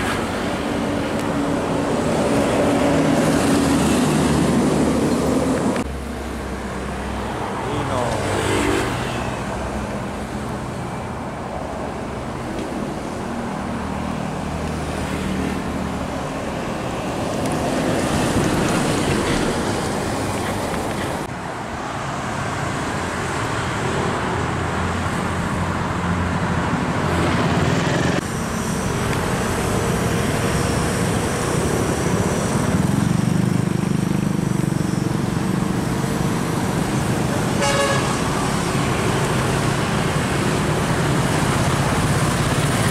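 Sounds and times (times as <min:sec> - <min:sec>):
trucks and cars passing: 0:00.0 - 0:42.9
truck engines running low: 0:09.2 - 0:42.9.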